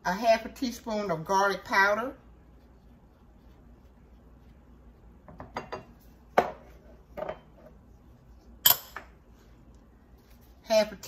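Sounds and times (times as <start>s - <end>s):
kitchenware clinking and knocking: 5.3s - 7.5s.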